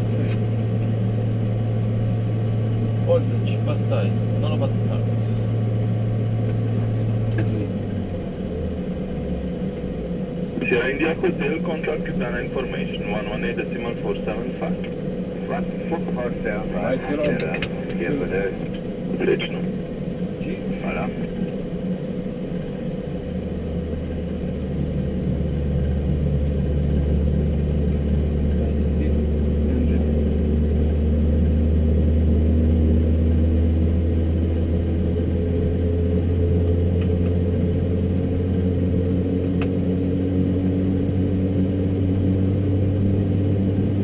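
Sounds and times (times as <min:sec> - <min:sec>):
turboprop engine starting: 0:00.0 - 0:44.0.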